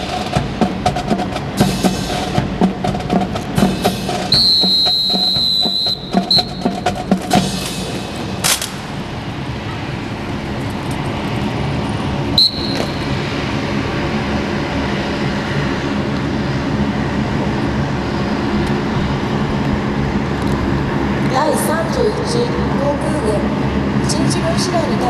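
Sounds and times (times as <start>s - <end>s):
engine-like rumble with hum: 0.0s - 25.0s
sharp clack: 6.4s - 9.0s.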